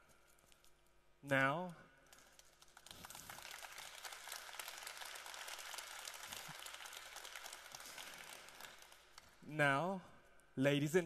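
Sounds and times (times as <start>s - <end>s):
audience applauding: 2.6s - 9.3s.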